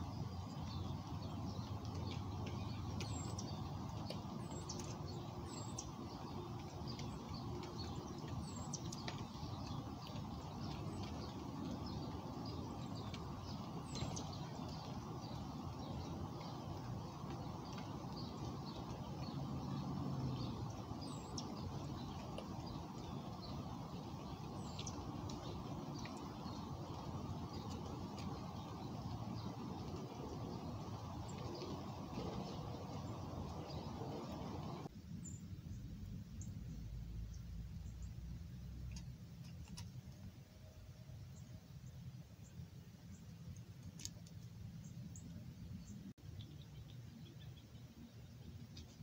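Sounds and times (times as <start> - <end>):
wing flutter: 0.0 - 34.9
low outdoor rumble: 0.0 - 49.0
songbirds chirping: 0.0 - 49.0.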